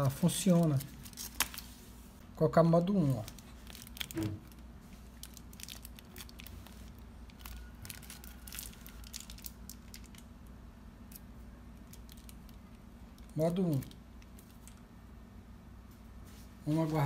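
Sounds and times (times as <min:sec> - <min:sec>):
steady low hum: 0:00.0 - 0:17.0
plastic items clicking and crinkling: 0:03.1 - 0:10.3, 0:11.8 - 0:14.8.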